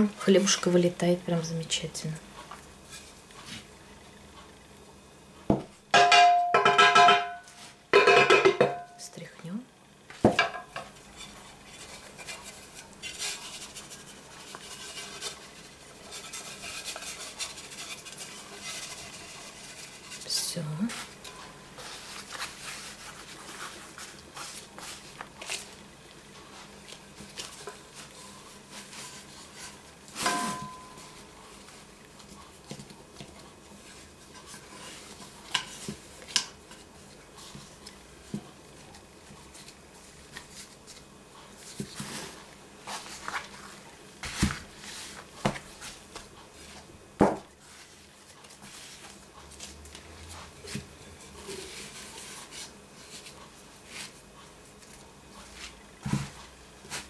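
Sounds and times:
metal tins knocking and clinking: 5.9 - 9.0.

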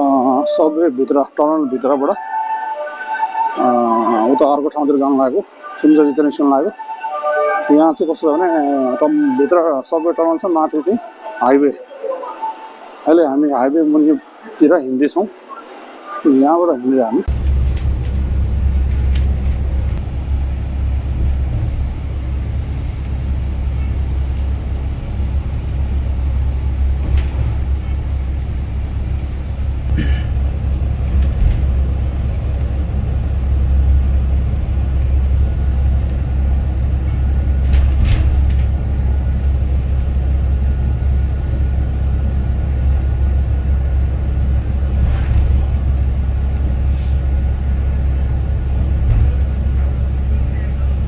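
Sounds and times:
engine and tyre road rumble: 17.2 - 51.0.

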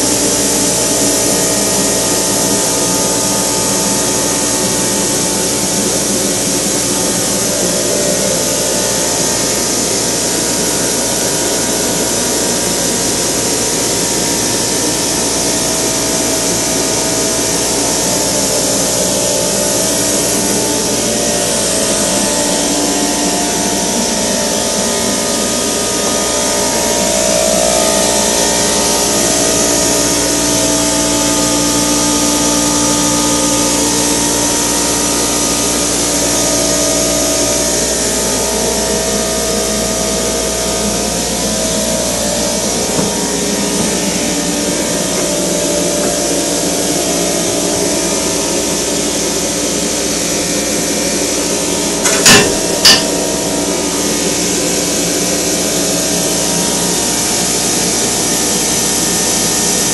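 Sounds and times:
pneumatic hammer running: 41.4 - 46.9, 51.2 - 54.6
sharp knocks: 52.0 - 53.2.

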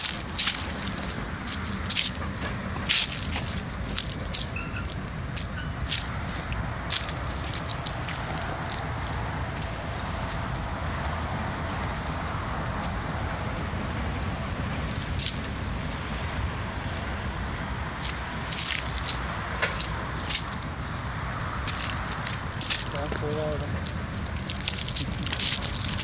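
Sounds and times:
tram rumbling on rails: 0.0 - 26.0
sharp clicks and squeaks: 2.0 - 8.4.

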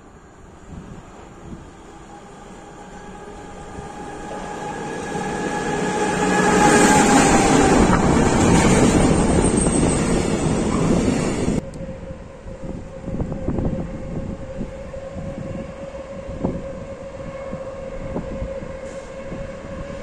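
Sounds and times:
electric locomotive whine: 0.0 - 20.0
freight wagons rumbling past: 1.2 - 11.6.

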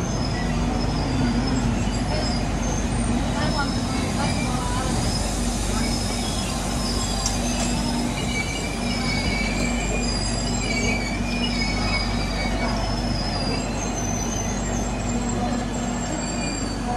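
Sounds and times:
train rumbling slowly: 0.0 - 16.9
train wheels squealing: 0.0 - 16.9.

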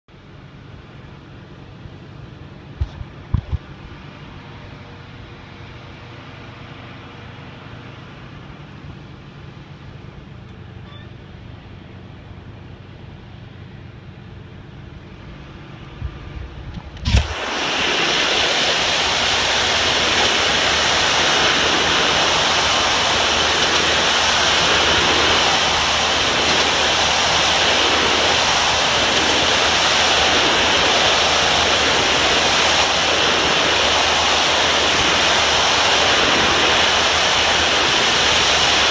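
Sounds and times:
pressure washer humming: 3.7 - 38.9
high-pressure water jet hissing: 17.0 - 38.9.

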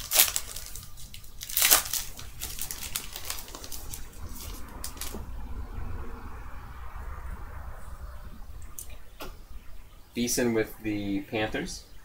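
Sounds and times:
wrapper crinkling: 0.0 - 5.2.

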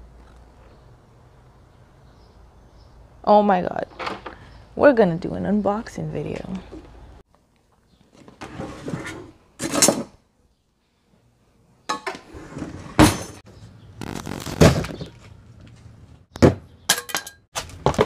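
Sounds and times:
kitchen drawer opening: 12.0 - 13.4
metal utensils clattering: 16.9 - 17.5.

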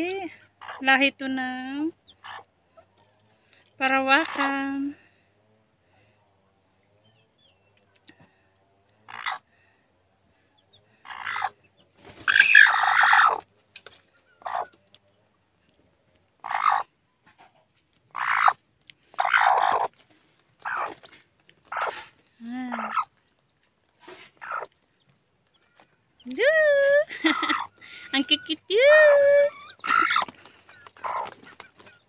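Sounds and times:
hen clucking growls: 8.0 - 9.6, 10.6 - 13.5, 16.4 - 20.0, 20.6 - 23.2, 24.0 - 24.8, 25.6 - 32.0.

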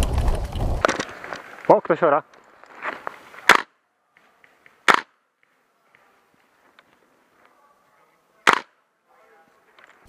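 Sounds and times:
airsoft gun shots: 3.4 - 3.7, 4.8 - 5.2, 8.4 - 8.8.

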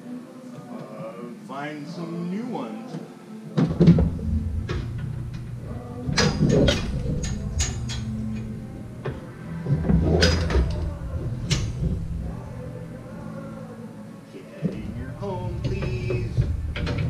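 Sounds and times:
metal clanks and knocks: 3.6 - 12.6, 14.6 - 17.0
low rumble: 3.8 - 13.7, 14.7 - 17.0.

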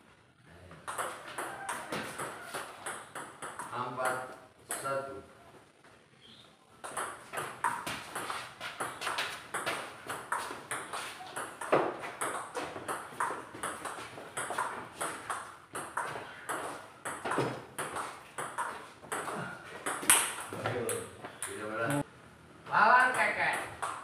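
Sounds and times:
ball bouncing on table: 0.8 - 4.8, 6.8 - 21.6, 23.0 - 24.0
paddle hitting ball: 6.8 - 21.6.

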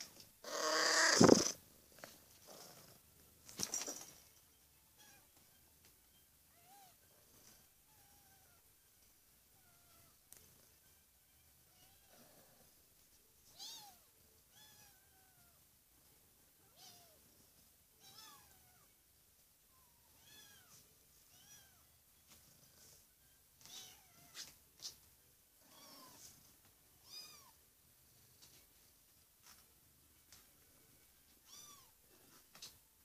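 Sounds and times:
kittens mewing: 0.4 - 1.6.

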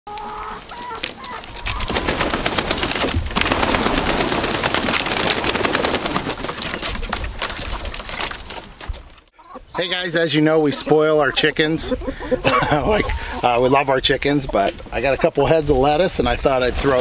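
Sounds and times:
chickens clucking: 0.1 - 2.6, 5.8 - 16.9
hens flapping wings: 0.1 - 9.2.

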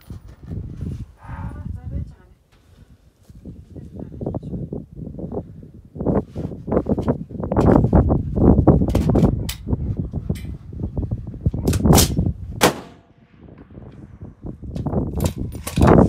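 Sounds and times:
steady low rumble: 6.8 - 16.0
rifle shots: 11.7 - 13.7.

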